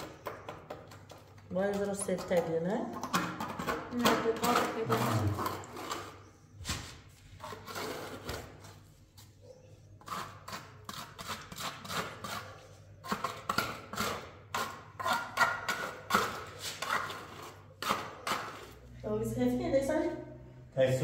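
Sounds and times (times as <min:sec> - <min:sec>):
trowel scraping wet cement: 0:01.0 - 0:06.3, 0:07.3 - 0:09.4, 0:10.0 - 0:18.8.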